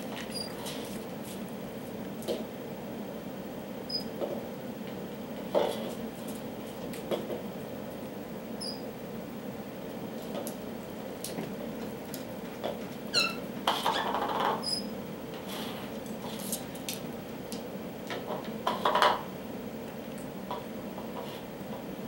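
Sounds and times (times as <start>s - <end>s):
parrot squeaks: 13.1s - 14.0s.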